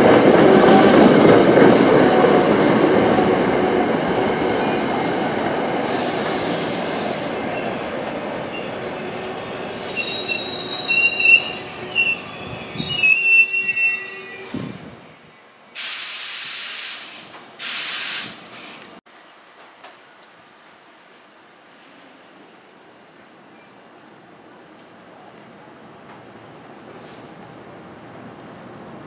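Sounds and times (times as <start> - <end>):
train rolling past: 0.0 - 16.4
wheels squealing on rails: 4.6 - 14.9
loud bursts of hiss: 5.0 - 7.4, 15.8 - 19.0.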